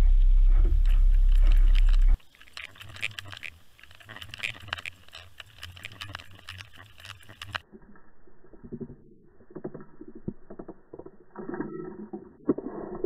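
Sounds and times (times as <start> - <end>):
boat engine rumble: 0.0 - 7.6
faint low hum: 0.0 - 11.9
underwater clicks and ticks: 0.6 - 13.0.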